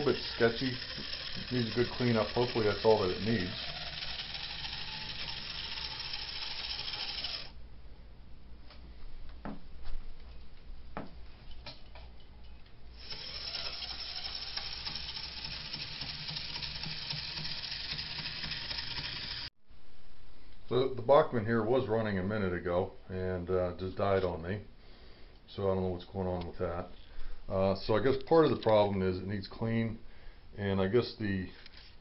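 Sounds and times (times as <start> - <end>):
model train motor whirring: 0.0 - 7.6, 13.0 - 19.5.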